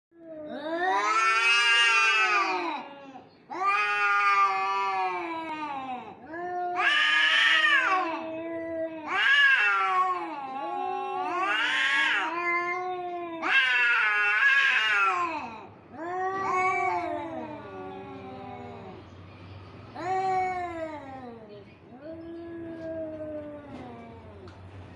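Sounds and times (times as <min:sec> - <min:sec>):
cats yowling: 0:00.2 - 0:19.0, 0:20.0 - 0:24.6.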